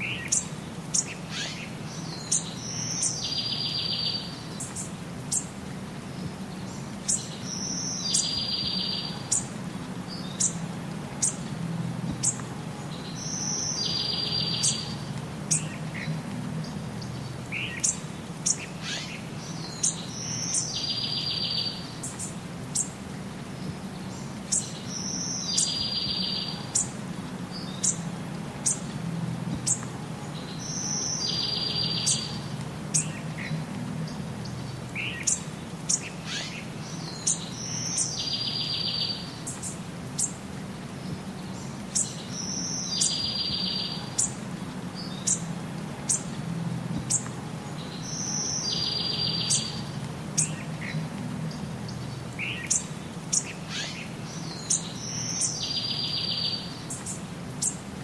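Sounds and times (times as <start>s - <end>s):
steady low hum: 0.0s - 43.3s, 43.9s - 56.0s
birds chirping and calling: 0.0s - 57.9s
buzzy bird trill: 13.0s - 22.9s, 29.6s - 40.4s, 47.8s - 57.8s.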